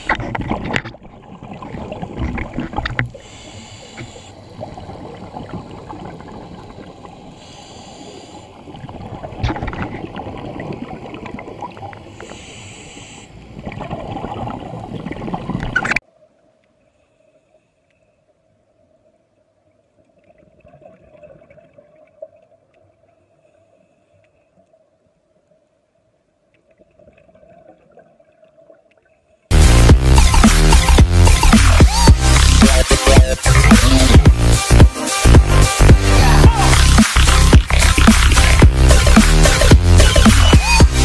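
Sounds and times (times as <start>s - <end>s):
exhaled bubbles: 0.0s - 7.4s, 13.5s - 16.0s
underwater rumble of water: 0.0s - 12.3s, 13.4s - 16.0s
breath hissing through regulator: 3.1s - 4.6s, 7.3s - 8.7s, 12.1s - 13.5s.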